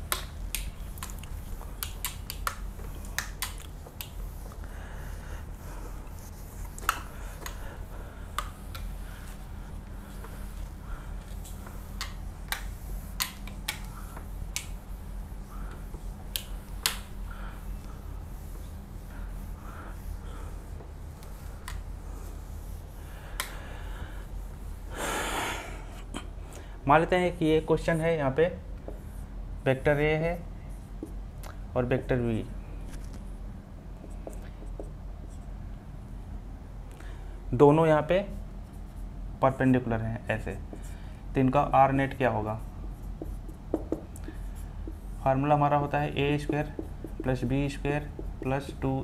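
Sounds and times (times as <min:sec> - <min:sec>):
clicks and taps on whiteboard: 0:00.0 - 0:04.6, 0:12.0 - 0:14.8, 0:15.7 - 0:17.1, 0:31.0 - 0:31.2, 0:34.0 - 0:35.0, 0:43.0 - 0:45.1, 0:46.1 - 0:49.0
low electrical hum: 0:00.0 - 0:49.0
soft rubbing: 0:00.7 - 0:24.9.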